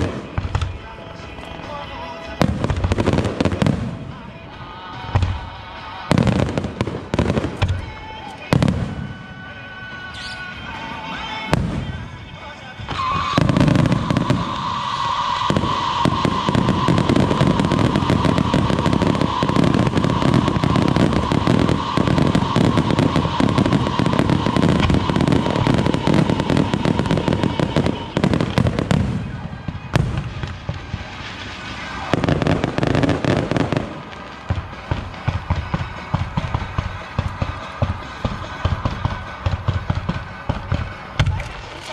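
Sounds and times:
fireworks crackling and popping: 0.0s - 41.9s
firework bang: 12.9s - 41.9s.

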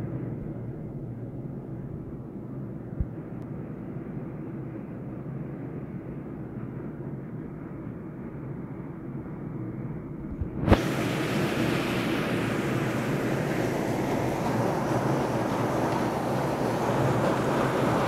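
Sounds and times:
strong wind: 10.0s - 18.0s
heavy rain downpour: 10.7s - 18.0s.

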